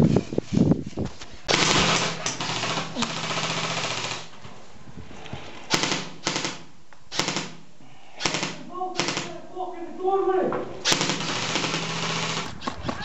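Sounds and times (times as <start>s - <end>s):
airsoft rifle automatic fire: 1.5s - 4.3s, 5.7s - 7.6s, 8.2s - 9.4s, 10.8s - 13.0s.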